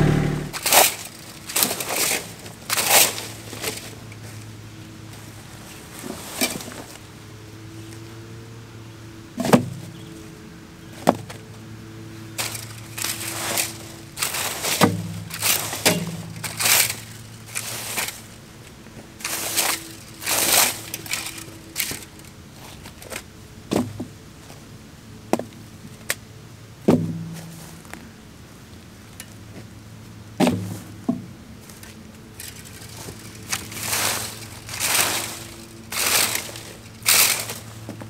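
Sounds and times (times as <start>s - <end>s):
rake scraping through leaves: 0.0s - 4.5s, 5.1s - 7.0s, 12.3s - 18.4s, 19.2s - 23.2s, 31.6s - 38.0s.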